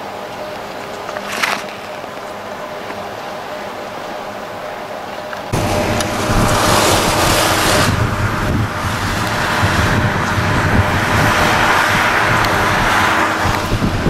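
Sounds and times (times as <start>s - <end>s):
wind on microphone: 5.5s - 14.0s
skis hissing on snow: 5.6s - 13.5s.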